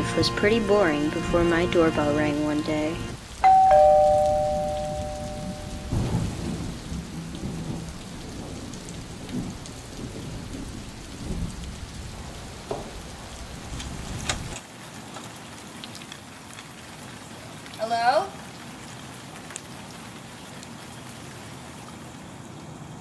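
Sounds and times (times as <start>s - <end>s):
rain falling: 0.0s - 23.0s
thunder rumble: 3.0s - 14.6s.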